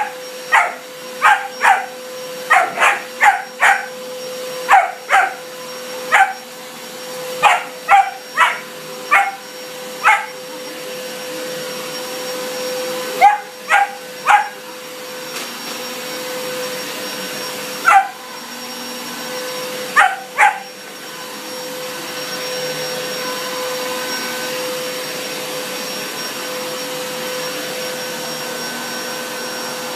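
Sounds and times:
puppy barking: 0.0 - 4.0, 4.6 - 5.5, 6.1 - 6.5, 7.4 - 10.4, 13.2 - 14.6, 17.8 - 18.2, 19.9 - 20.7
vacuum cleaner motor whine: 0.0 - 29.9.

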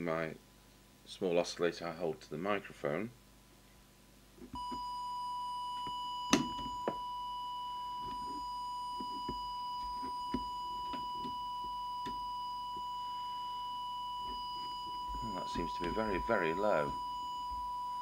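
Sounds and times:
steady oscillator whistle: 4.6 - 18.0.

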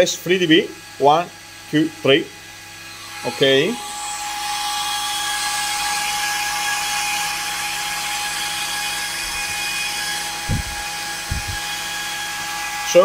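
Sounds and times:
cooling fans whirring: 0.0 - 13.0
dull bumps: 10.4 - 11.7.

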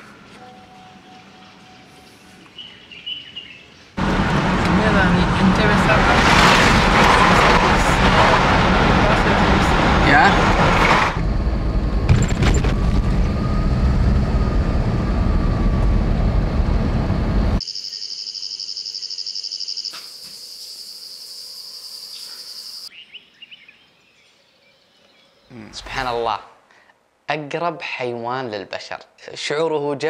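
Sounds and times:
vehicle road and engine noise: 4.0 - 17.6
high-pitched insect chirring: 17.6 - 22.9.

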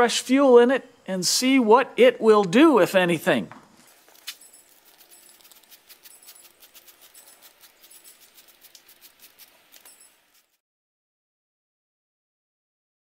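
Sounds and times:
spray bottle spritzing: 4.0 - 10.6.

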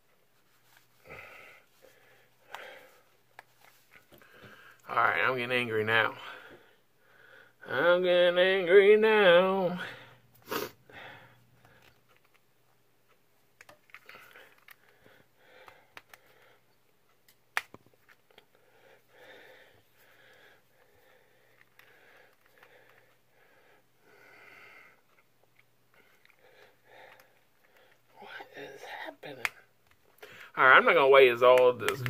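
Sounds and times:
man breathing heavily: 1.0 - 3.2, 6.2 - 7.6, 9.8 - 12.0, 14.0 - 16.8, 18.5 - 25.2, 25.9 - 28.6.

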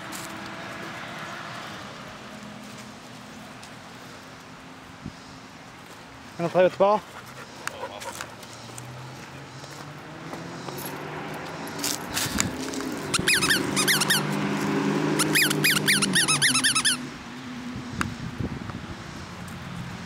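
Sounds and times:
squeaky toy squeaking: 13.1 - 14.3, 15.2 - 17.1.

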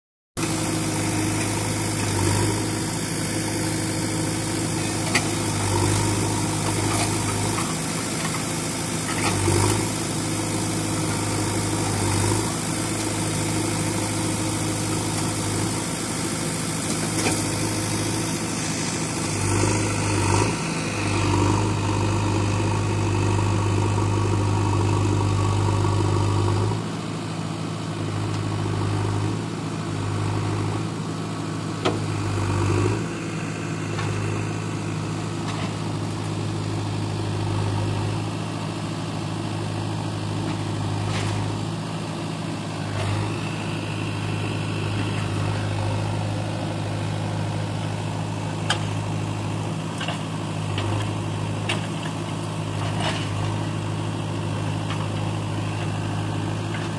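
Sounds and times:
engine idling: 0.4 - 26.4, 33.0 - 56.9.

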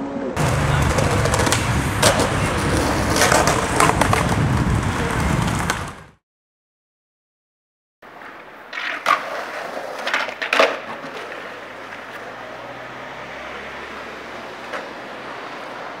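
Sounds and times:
skateboard clacking on ground: 0.4 - 6.0, 8.1 - 12.4, 14.6 - 15.0
skateboard wheels rolling: 0.4 - 6.2, 8.1 - 16.0.

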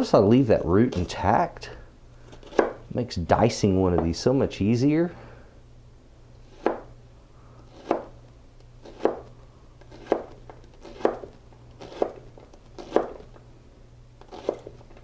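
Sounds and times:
knife chopping on plastic board: 2.4 - 2.8, 6.5 - 6.9, 7.7 - 8.1, 8.8 - 13.3, 14.3 - 14.8.

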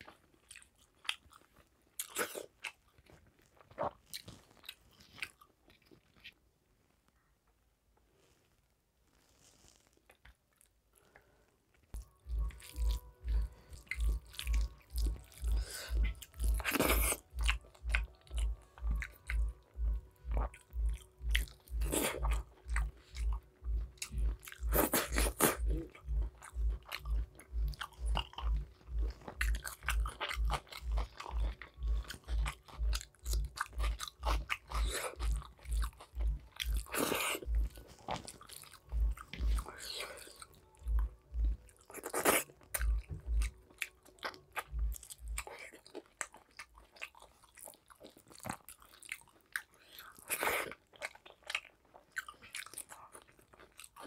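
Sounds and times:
close chewing with wet clicks: 0.0 - 6.4, 11.9 - 54.0.

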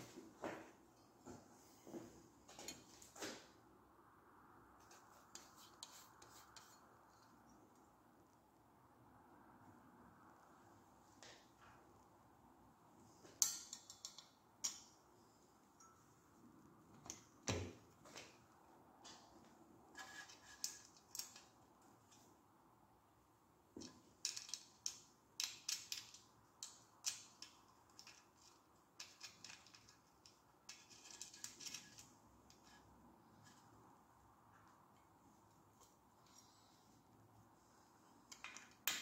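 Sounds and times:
clicks of metal parts and tools: 13.3 - 15.0, 20.0 - 22.3, 23.8 - 32.8, 38.3 - 39.0.

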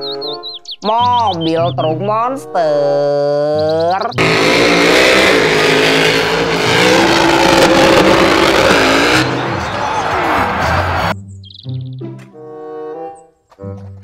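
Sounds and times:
truck engine revving hard: 4.1 - 11.1.

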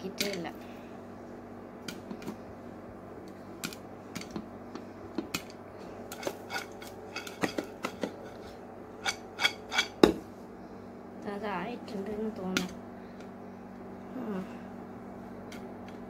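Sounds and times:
popcorn popping: 0.0 - 0.5, 1.8 - 2.5, 3.2 - 10.3
low steady hum: 0.0 - 16.0.

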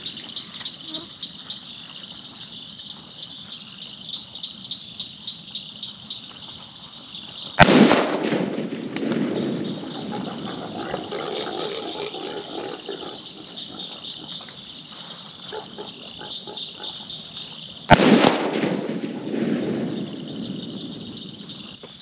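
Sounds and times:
night insects chirring: 0.0 - 22.0
rifle shot: 7.6 - 9.8, 17.9 - 21.1.

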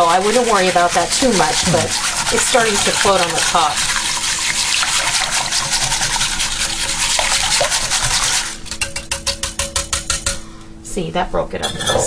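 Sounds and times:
whisk swishing liquid: 0.0 - 10.4
whisk clicking on crock sides: 5.5 - 10.4.

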